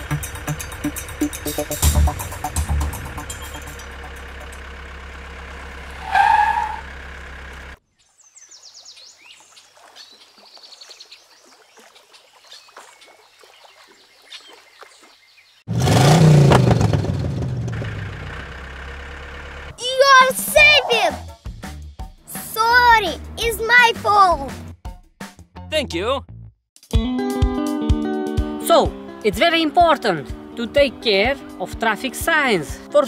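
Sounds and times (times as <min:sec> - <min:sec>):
birds chirping: 0:07.8 - 0:15.7, 0:19.8 - 0:21.3.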